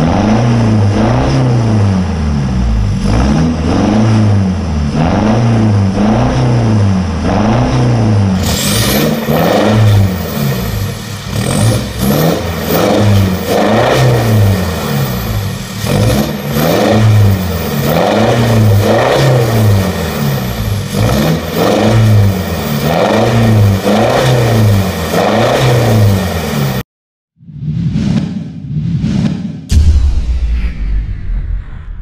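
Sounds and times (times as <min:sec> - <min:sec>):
diesel engine revving: 0:00.0 - 0:26.8
brief whoosh: 0:27.4 - 0:32.0.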